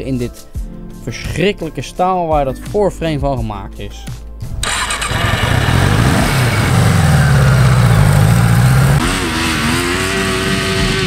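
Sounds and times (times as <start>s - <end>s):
small engine revving: 4.6s - 11.0s.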